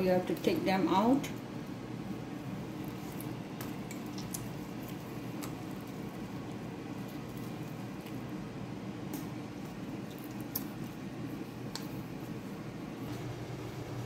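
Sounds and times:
meat tearing: 2.7s - 8.4s, 9.0s - 12.5s.

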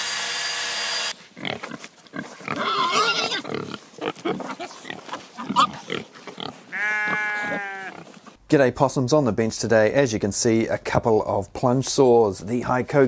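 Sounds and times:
power saw cutting: 0.0s - 1.2s
pigs grunting: 1.4s - 8.3s
pig squealing: 2.4s - 8.1s.

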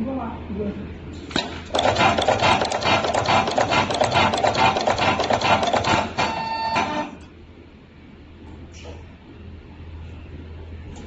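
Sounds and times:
crimping machine clacks: 1.4s - 6.4s
machine whine: 1.7s - 7.3s.

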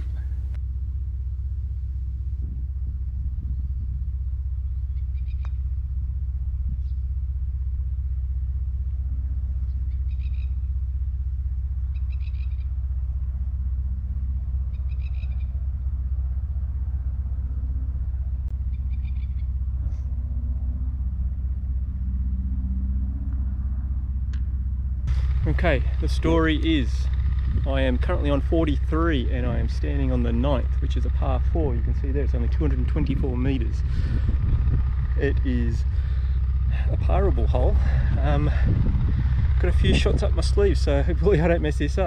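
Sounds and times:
bird calling: 0.0s - 0.6s, 4.6s - 5.6s, 9.6s - 10.8s, 11.7s - 12.8s, 14.6s - 15.7s, 18.6s - 20.1s
low wind rumble on microphone: 0.0s - 42.0s.

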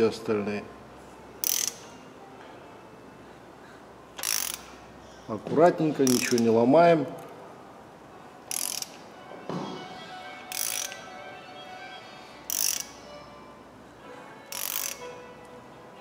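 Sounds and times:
ratchet wrench clicking: 1.4s - 2.0s, 4.2s - 4.8s, 6.0s - 6.5s, 8.5s - 9.0s, 10.5s - 11.0s, 12.5s - 13.0s, 14.5s - 15.1s.

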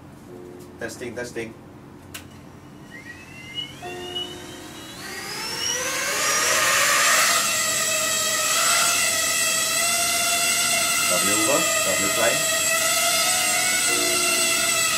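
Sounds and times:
quadcopter motors whining: 2.8s - 14.9s.

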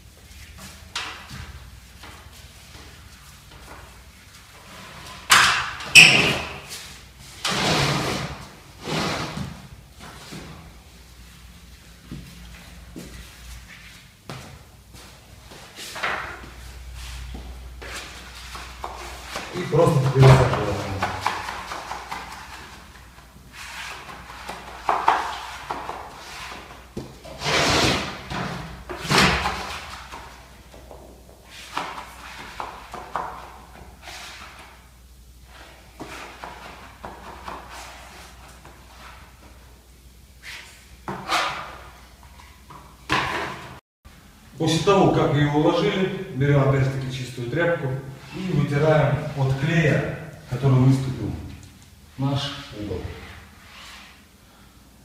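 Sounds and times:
spatula scraping wallpaper: 6.3s - 9.6s, 16.9s - 28.3s, 35.5s - 39.5s, 40.4s - 42.0s, 52.8s - 54.3s.

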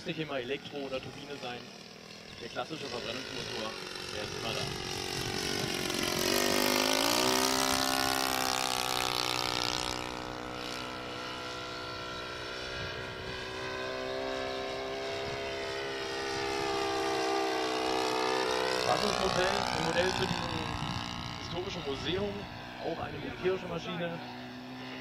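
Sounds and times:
model airplane propeller drone: 0.0s - 25.0s.

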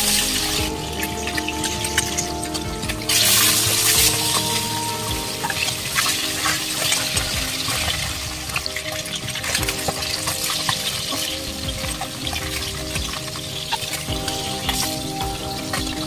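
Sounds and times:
background music: 0.0s - 16.0s
fish sizzling in oil: 0.0s - 16.0s.

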